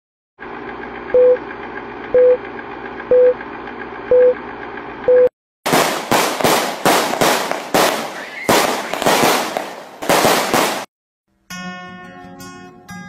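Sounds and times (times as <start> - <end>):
short countdown beeps: 1.2 - 1.4, 2.2 - 2.4, 3.1 - 3.4, 4.1 - 4.4, 5.1 - 5.3
fireworks banging: 5.7 - 10.9.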